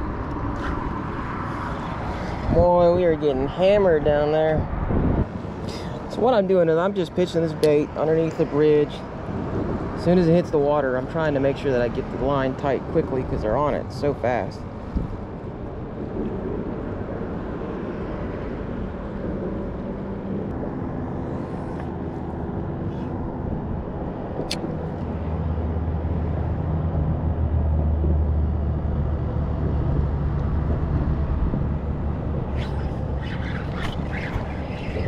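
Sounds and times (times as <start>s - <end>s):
road traffic rumbling: 0.0s - 35.0s
sharp click: 24.4s - 24.7s.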